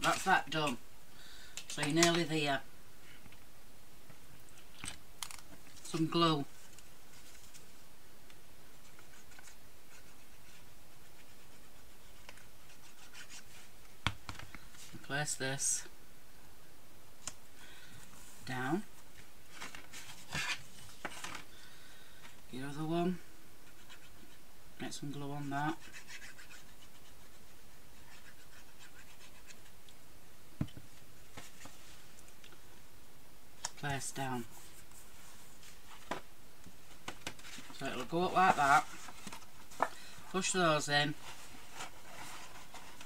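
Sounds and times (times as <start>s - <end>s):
steady background hiss: 0.0s - 43.0s
paper card rustling and scraping: 8.7s - 15.0s, 19.2s - 21.5s, 25.4s - 29.8s, 36.9s - 43.0s.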